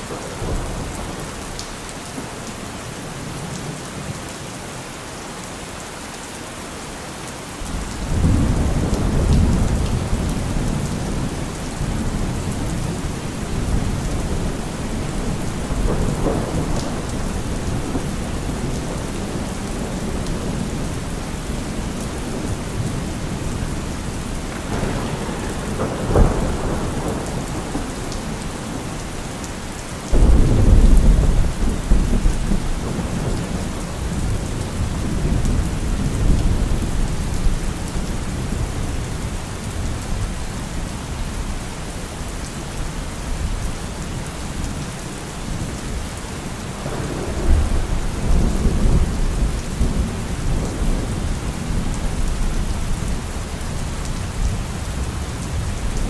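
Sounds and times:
heavy rain: 0.0s - 56.0s
rolling thunder rumble: 7.7s - 40.3s, 46.8s - 56.0s
sharp thunderclap: 24.5s - 28.9s, 30.1s - 34.4s.

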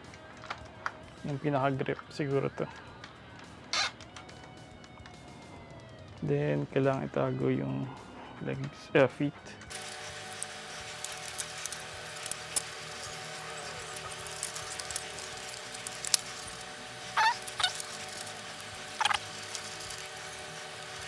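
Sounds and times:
plastic joints squeaking: 3.7s - 5.1s, 17.1s - 21.0s.

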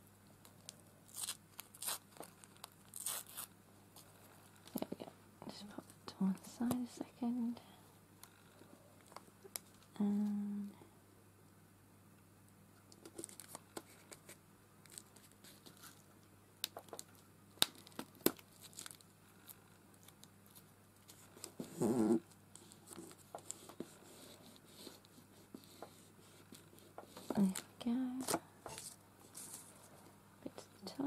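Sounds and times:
paper crinkling: 0.4s - 4.9s, 13.0s - 21.8s, 22.6s - 30.0s
tape peeling and tearing: 0.5s - 3.5s, 13.0s - 16.0s, 16.6s - 23.9s.

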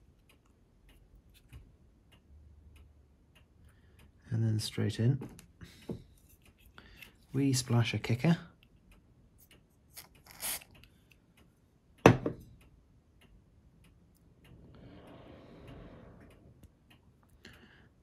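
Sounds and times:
faint steady ticking: 0.0s - 18.0s
glue accelerator spray: 10.2s - 10.7s.

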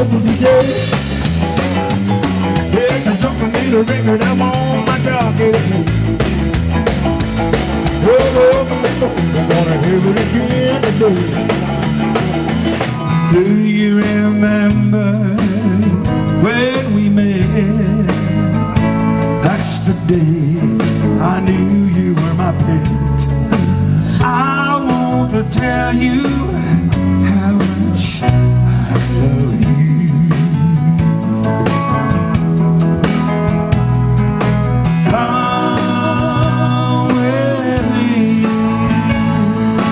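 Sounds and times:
person singing: 0.0s - 1.4s, 2.3s - 6.3s, 7.5s - 11.8s, 13.1s - 18.4s, 34.9s - 39.9s
bass: 0.0s - 39.9s
drum kit: 0.0s - 39.9s
keyboard: 0.0s - 39.9s.

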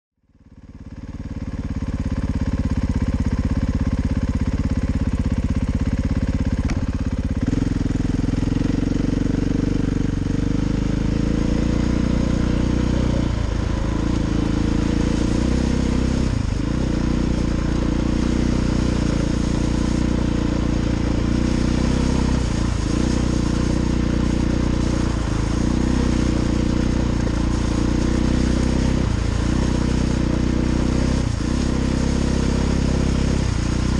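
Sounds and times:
dirt bike engine running: 0.2s - 33.9s
wind and riding noise: 6.5s - 33.9s.

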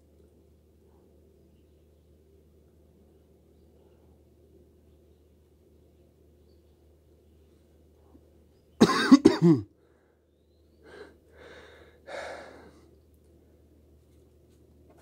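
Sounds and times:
person coughing: 8.8s - 9.7s
breathy sounds: 10.9s - 12.9s.

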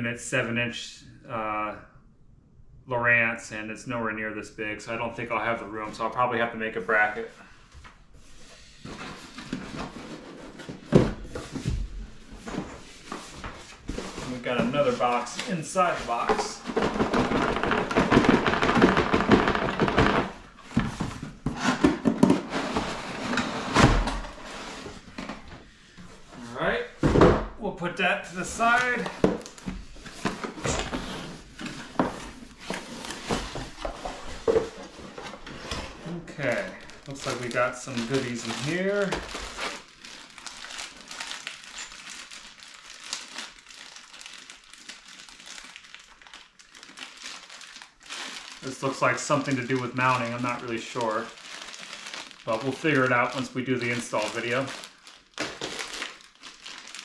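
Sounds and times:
cardboard boxes scraping: 8.8s - 25.2s, 28.4s - 36.3s
plastic bags crinkling: 11.4s - 21.2s, 36.1s - 57.0s.

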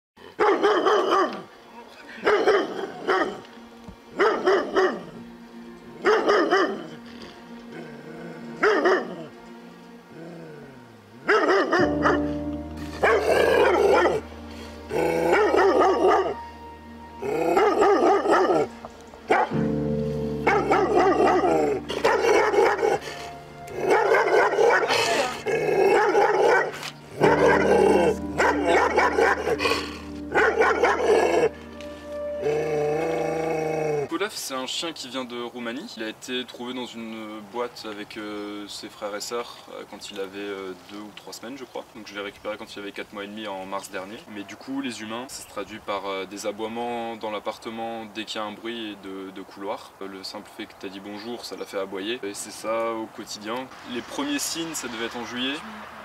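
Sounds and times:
dog barking: 0.4s - 1.5s, 2.2s - 3.4s, 4.2s - 5.1s, 6.0s - 6.9s, 8.6s - 9.2s, 11.3s - 12.3s, 13.0s - 14.2s, 15.3s - 16.4s, 17.6s - 18.7s, 19.3s - 19.6s, 20.4s - 23.1s, 23.8s - 29.6s, 30.3s - 31.5s
music with low bass: 11.8s - 34.0s.

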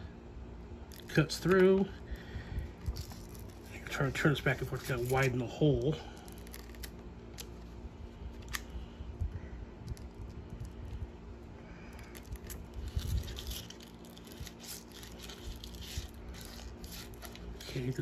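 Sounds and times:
knife scratching strap: 12.4s - 18.0s.

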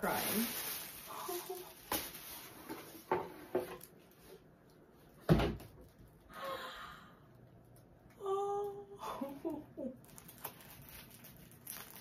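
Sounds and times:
sharp plastic crinkles: 0.0s - 4.2s, 9.9s - 12.0s
plastic packaging rustling: 0.0s - 4.5s, 9.5s - 12.0s.

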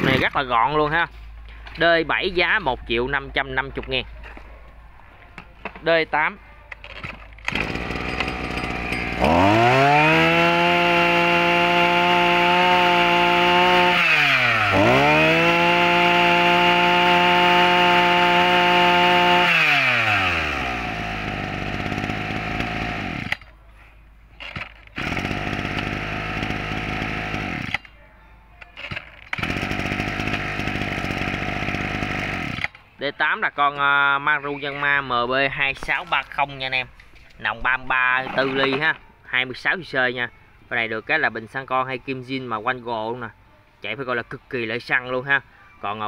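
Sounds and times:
brush cutter engine revving: 0.0s - 0.6s, 6.9s - 23.5s, 24.4s - 27.9s, 28.8s - 32.8s.

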